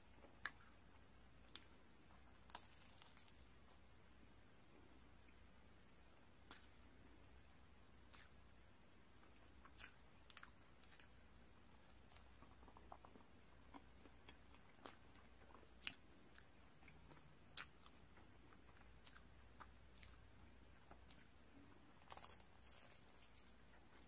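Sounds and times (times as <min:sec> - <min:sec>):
chewing bread: 0:00.0 - 0:03.8, 0:06.4 - 0:24.0
crackly bites into pastry: 0:22.0 - 0:23.6.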